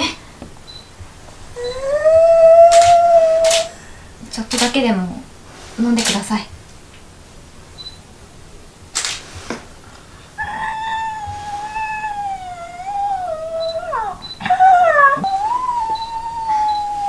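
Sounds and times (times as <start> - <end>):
breathy noise: 1.5 - 4.3, 9.0 - 17.0
person whimpering whine: 1.6 - 3.8, 10.4 - 17.0.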